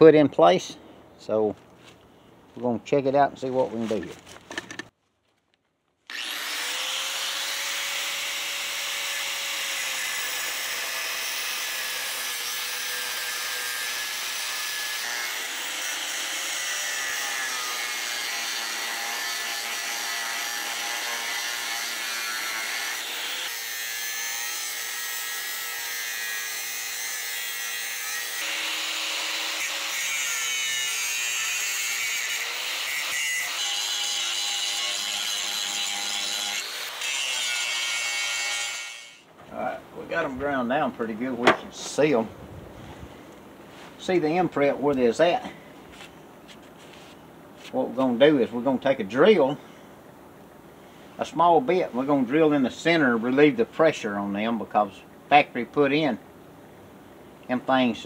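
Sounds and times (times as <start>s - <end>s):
angle grinder grinding metal: 6.1s - 39.3s.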